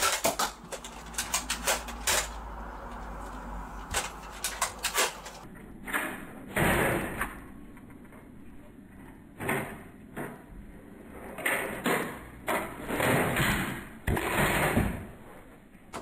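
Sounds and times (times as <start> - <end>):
toy blaster rattles and clacks: 0.0 - 2.5, 3.9 - 5.5.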